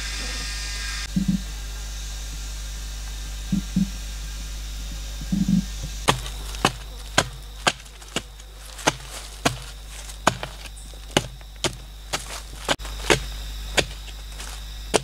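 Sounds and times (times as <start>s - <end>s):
digging tool chopping into ground: 6.1s - 15.0s.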